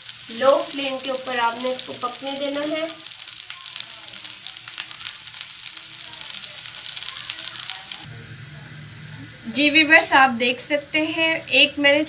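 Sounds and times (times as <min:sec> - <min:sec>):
flatbread sizzling in oil: 0:00.0 - 0:12.0
low steady hum: 0:08.1 - 0:12.0.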